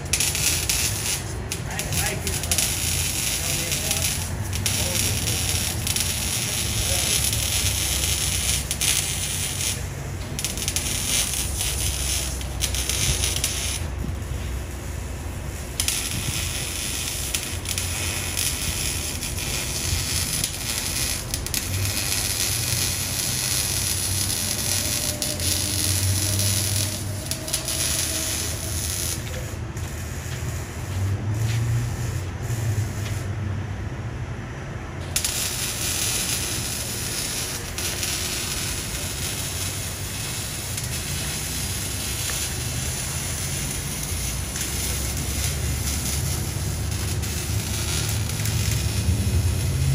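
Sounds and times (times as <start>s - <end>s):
car engine drone: 0.0s - 49.9s
steady hiss: 35.0s - 49.9s.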